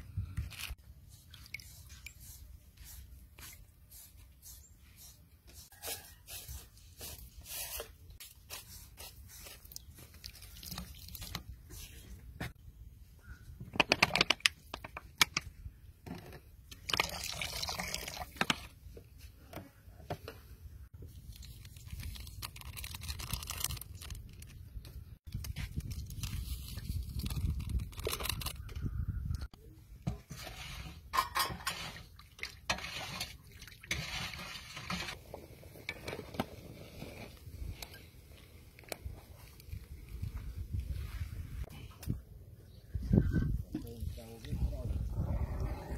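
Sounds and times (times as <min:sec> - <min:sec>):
plastic rustling: 0:21.1 - 0:28.6
plastic sachets crinkling: 0:21.1 - 0:28.7
plastic crackling: 0:21.2 - 0:28.6.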